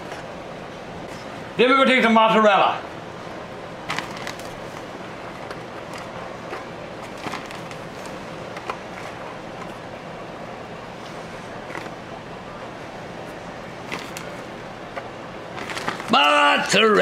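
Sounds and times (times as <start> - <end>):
room hum: 0.0 - 17.0
plastic bag rustling: 3.8 - 9.3, 13.8 - 14.5, 15.5 - 16.2.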